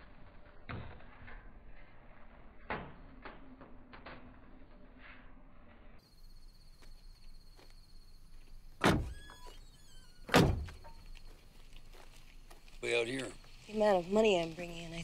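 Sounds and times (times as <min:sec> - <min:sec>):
vehicle doors slamming: 0:08.8 - 0:09.4, 0:10.2 - 0:10.9.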